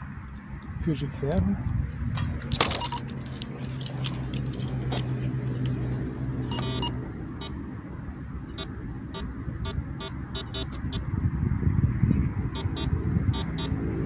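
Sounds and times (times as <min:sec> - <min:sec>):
metal detector short beeps: 0:02.7 - 0:03.0, 0:06.5 - 0:07.5, 0:12.6 - 0:13.8
metal detector tone: 0:02.7 - 0:03.0, 0:06.5 - 0:07.6, 0:12.5 - 0:13.8.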